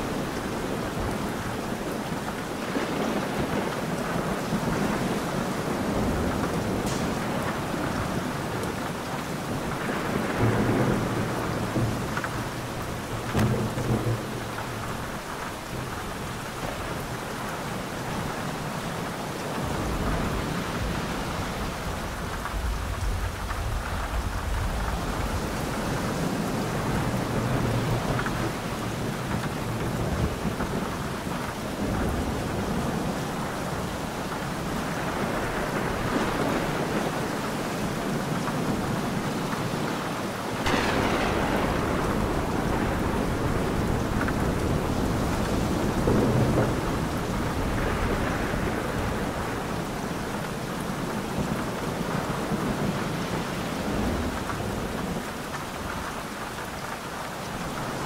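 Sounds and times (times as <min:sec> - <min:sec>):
thunder rolling: 0:00.0 - 0:17.1, 0:40.5 - 0:53.0
heavy rain: 0:00.0 - 0:58.0.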